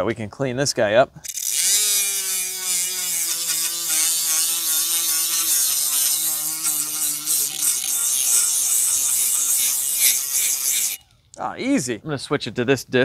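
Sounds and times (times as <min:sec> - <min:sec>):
grinder motor whine: 0:01.3 - 0:11.0.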